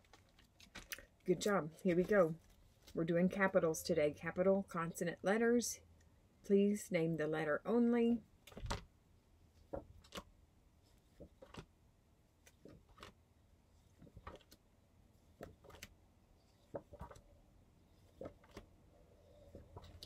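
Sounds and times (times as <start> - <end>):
paper flashcards rustling: 0.0 - 3.1, 9.6 - 10.3, 10.9 - 11.7, 12.4 - 13.2, 13.8 - 14.6, 15.2 - 15.9, 16.5 - 17.3, 18.0 - 18.7.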